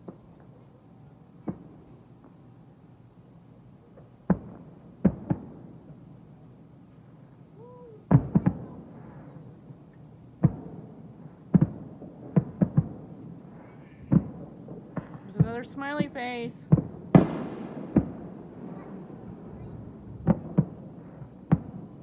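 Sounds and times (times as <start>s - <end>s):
fireworks bursting: 8.0s - 9.7s, 10.4s - 22.0s.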